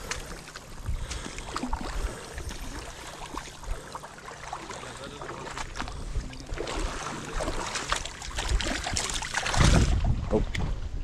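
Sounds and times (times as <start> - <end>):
wind rumbling on microphone: 0.0 - 2.8, 8.3 - 11.0
water splashing and lapping: 0.0 - 11.0.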